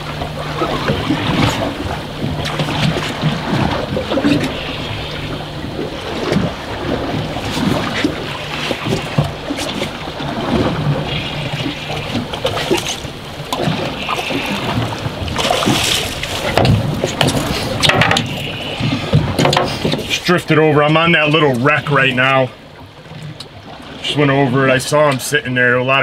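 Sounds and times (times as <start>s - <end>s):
low hum: 0.0s - 23.6s
water washing against boat hull: 0.0s - 26.0s
wind: 0.0s - 26.0s.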